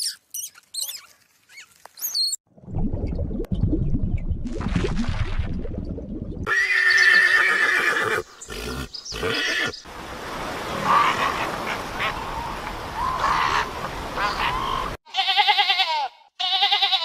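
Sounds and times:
horse neighing: 6.5s - 9.8s.

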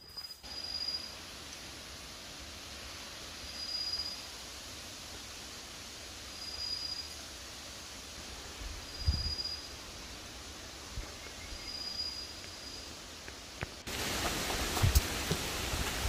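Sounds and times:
wind in the trees: 0.4s - 16.0s
wind thumps on microphone: 8.6s - 9.4s, 13.6s - 16.0s.

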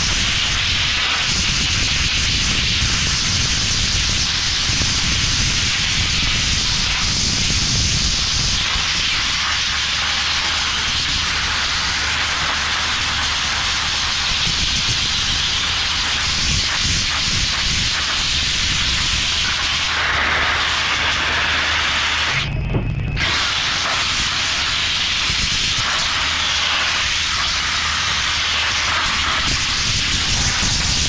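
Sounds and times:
sandblasting hiss: 0.0s - 31.0s
low rumble: 18.4s - 26.3s.

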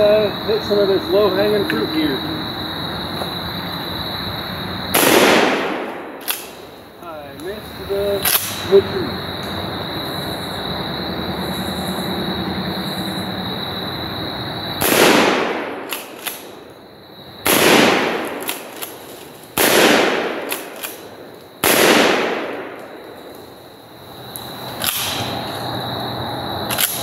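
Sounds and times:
shotgun shots: 4.9s - 6.7s, 14.8s - 16.6s, 17.4s - 23.0s, 24.8s - 25.3s.

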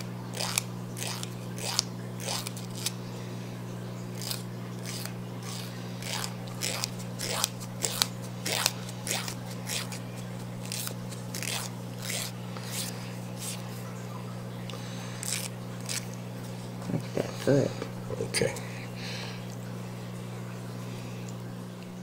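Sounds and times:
emery board rasping on toenails: 0.0s - 2.9s, 4.2s - 13.6s, 15.2s - 16.1s
steady low hum: 0.0s - 22.0s.

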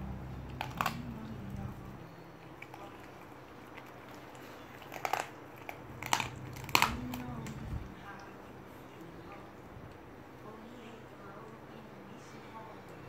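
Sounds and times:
puppy chewing raw meat: 0.0s - 10.1s
low steady hum: 0.0s - 13.0s.

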